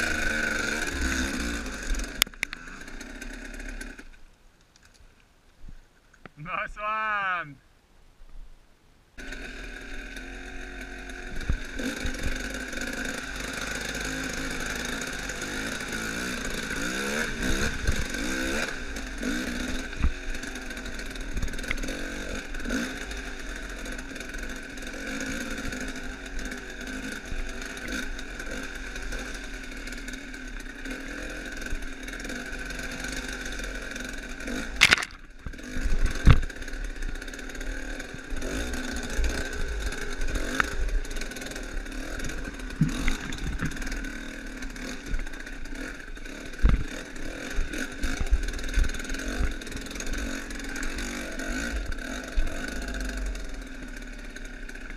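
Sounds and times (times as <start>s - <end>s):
dirt bike engine revving: 0.0s - 4.2s, 9.2s - 54.9s
knocks and clatter from bike: 34.8s - 44.2s, 44.8s - 53.2s.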